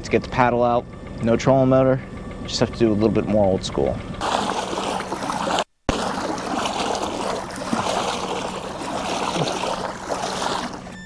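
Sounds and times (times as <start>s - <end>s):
water splashing from paddling: 4.2s - 11.0s.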